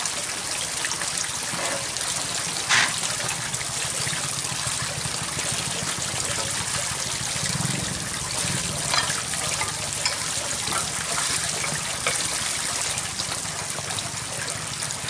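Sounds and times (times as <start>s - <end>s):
water running: 0.0s - 15.0s
dishes clinking: 1.5s - 3.0s, 8.4s - 12.6s.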